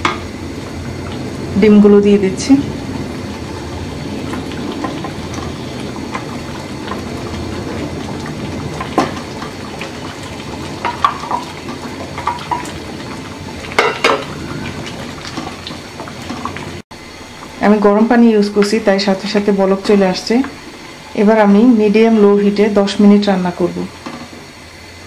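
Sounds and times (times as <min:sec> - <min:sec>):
curry simmering and bubbling: 0:02.4 - 0:17.6, 0:19.2 - 0:22.7.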